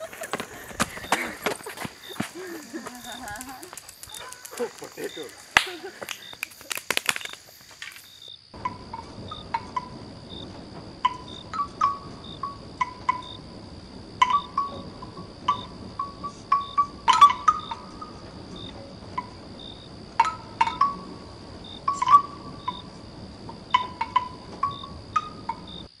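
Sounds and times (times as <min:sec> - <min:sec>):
night insects chirring: 0:00.0 - 0:26.0
sharp clicks: 0:02.1 - 0:08.2.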